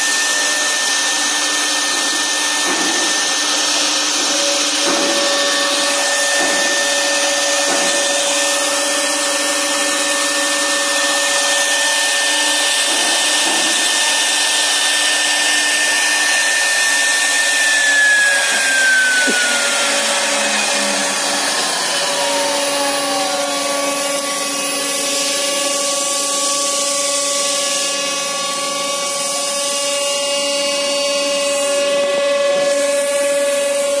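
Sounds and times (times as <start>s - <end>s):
router spindle whining: 0.0s - 34.0s
high tone sliding down: 16.1s - 25.9s.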